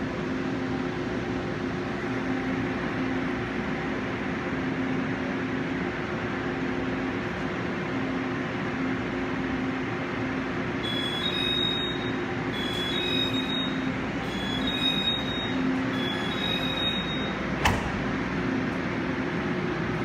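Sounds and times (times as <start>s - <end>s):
train hum: 0.0s - 20.0s
two-note door warning beep: 10.8s - 17.8s
sliding doors shutting knock: 17.5s - 18.3s.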